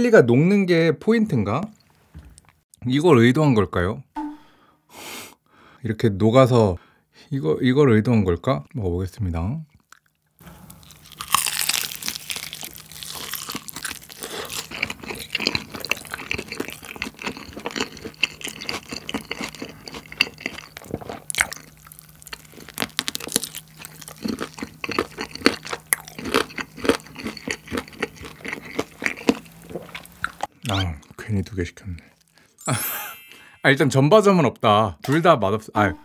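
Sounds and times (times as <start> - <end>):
crackly chewing: 9.7 - 31.2
biting fried chicken: 10.7 - 30.9.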